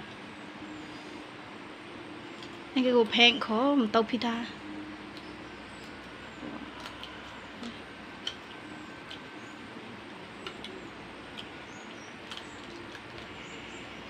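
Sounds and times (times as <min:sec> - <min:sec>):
steady background hiss: 0:00.0 - 0:14.0
people biting and chewing fruit: 0:05.0 - 0:14.0.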